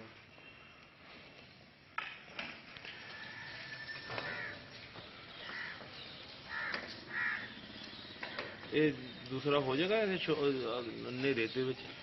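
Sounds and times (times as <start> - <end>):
crows cawing: 3.2 - 4.7, 5.3 - 7.8.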